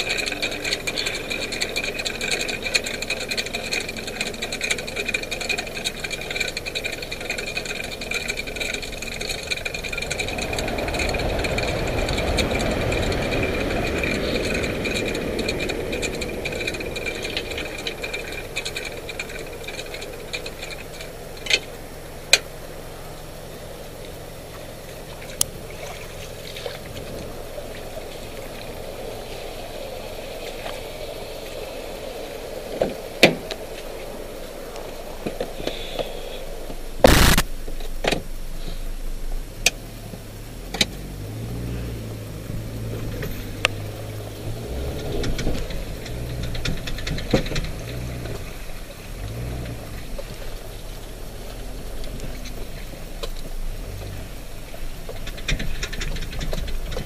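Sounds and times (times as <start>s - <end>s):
winch ratchet clicking: 0.0s - 21.7s, 42.6s - 57.0s
engine idling: 0.0s - 57.0s.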